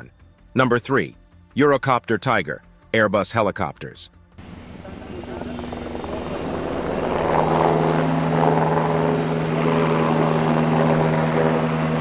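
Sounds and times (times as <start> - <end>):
helicopter rotor beat: 4.4 - 12.0
helicopter turbine whine: 4.4 - 12.0.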